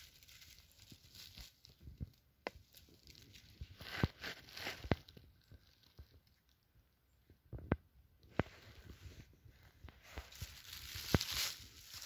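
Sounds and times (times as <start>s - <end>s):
pine needles rustling and crackling: 0.0s - 6.7s, 9.6s - 12.0s.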